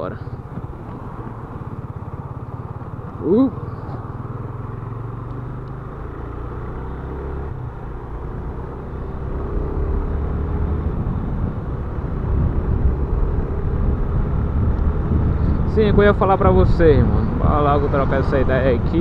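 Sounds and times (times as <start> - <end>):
motorcycle engine accelerating: 0.0 - 19.0
wind rush on microphone: 10.7 - 19.0.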